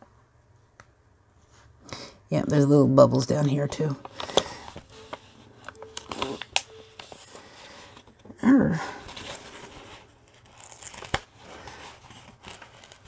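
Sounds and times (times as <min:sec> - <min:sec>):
plastic film crinkling and rustling: 0:03.8 - 0:08.2, 0:08.9 - 0:13.0.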